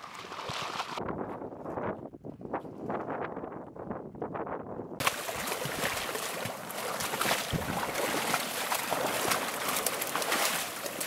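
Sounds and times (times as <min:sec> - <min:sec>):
water sloshing: 0:00.0 - 0:01.0, 0:05.0 - 0:11.0.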